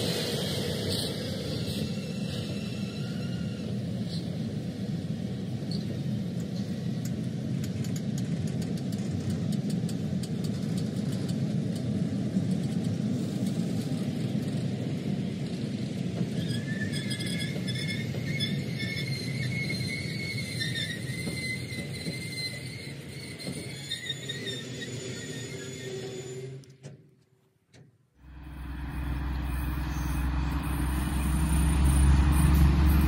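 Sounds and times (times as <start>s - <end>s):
high-pitched squeal: 0.0s - 4.5s, 16.3s - 26.7s, 28.2s - 33.0s
train wheels rumbling on rail: 0.0s - 33.0s.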